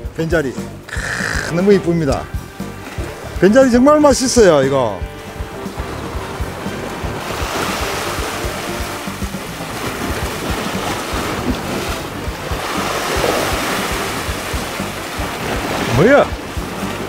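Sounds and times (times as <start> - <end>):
sea surf washing over rocks: 0.2 - 17.0.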